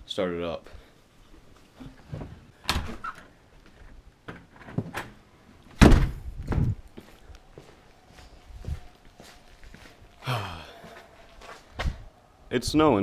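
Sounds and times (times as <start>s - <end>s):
door opening and shutting: 1.8s - 3.4s, 4.3s - 6.8s
door banging shut: 2.6s - 3.2s, 5.8s - 6.7s
knocks and thuds: 5.8s - 6.8s.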